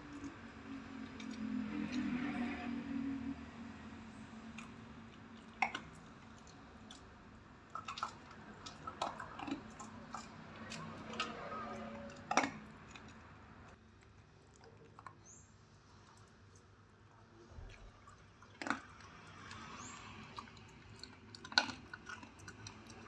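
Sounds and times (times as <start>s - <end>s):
dog crunching dry kibble: 0.0s - 2.7s, 4.3s - 16.8s, 17.6s - 23.0s.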